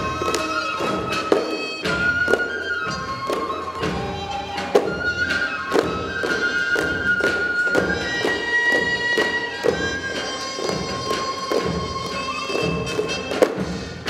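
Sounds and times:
steady drum strikes: 0:07.8 - 0:14.0.

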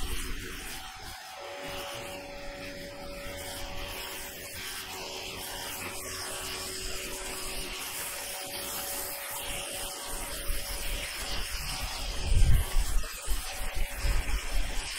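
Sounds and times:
pressure washer spraying roof: 0:00.0 - 0:14.9.

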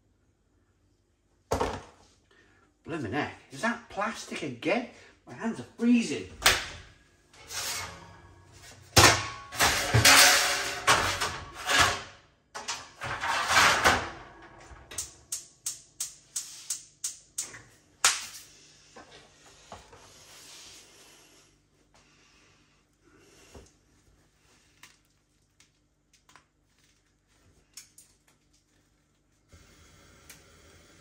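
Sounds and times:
clattering and rustling: 0:07.4 - 0:15.0.

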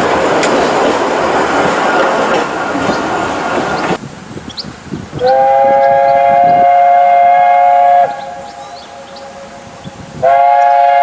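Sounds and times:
steam locomotive whistle: 0:05.2 - 0:11.0.

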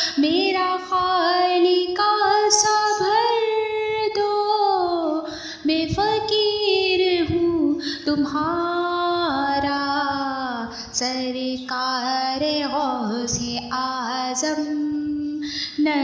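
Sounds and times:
woman singing unaccompanied: 0:00.0 - 0:16.0.

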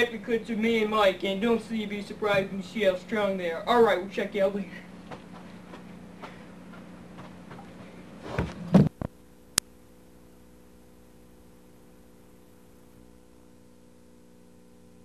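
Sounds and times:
electrical hum with hiss: 0:00.0 - 0:15.0
thumps: 0:08.3 - 0:09.1.

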